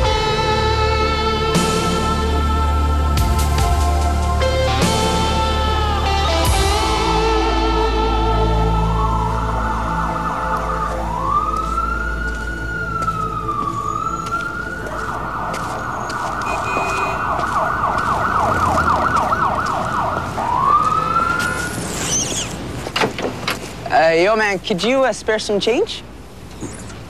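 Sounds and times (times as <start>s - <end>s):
electronic siren wailing and yelping: 6.9s - 22.6s.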